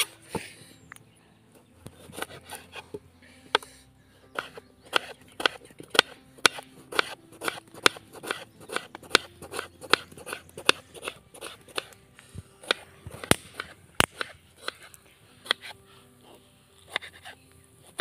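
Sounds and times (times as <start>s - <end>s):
knife chopping on wooden board: 2.0s - 2.9s, 4.3s - 12.0s, 12.6s - 15.7s.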